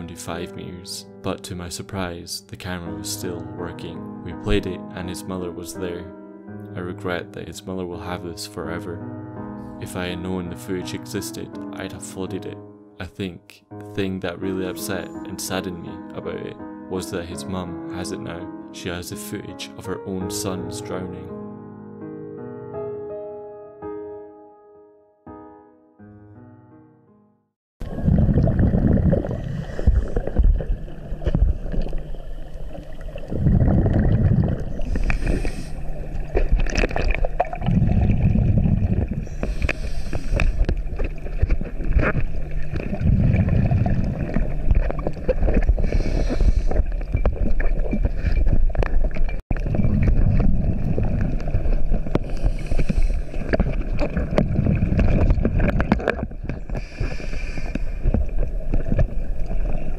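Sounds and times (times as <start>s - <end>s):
exhaust bubbles rushing: 27.8s - 39.4s, 40.8s - 45.9s, 49.1s - 52.3s, 53.4s - 56.4s
regulator inhale hiss: 34.8s - 36.0s, 39.2s - 40.8s, 45.8s - 46.9s, 52.2s - 53.5s, 56.7s - 58.2s.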